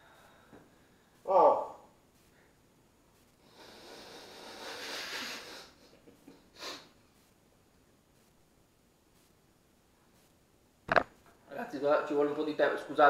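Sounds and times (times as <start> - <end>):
breathing through the nose: 3.4 - 5.8.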